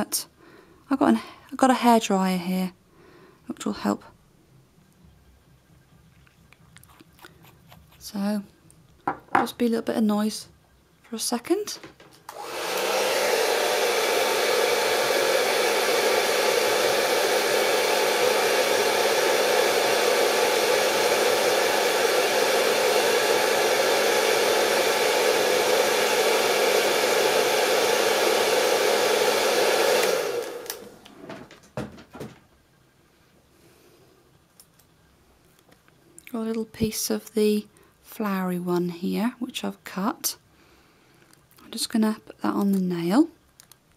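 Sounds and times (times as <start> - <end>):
hairdryer blowing: 12.3 - 31.0.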